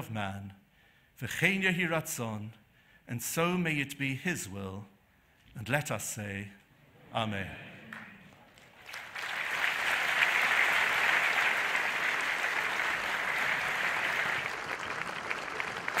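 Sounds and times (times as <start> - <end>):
large audience applauding: 7.9 - 16.0.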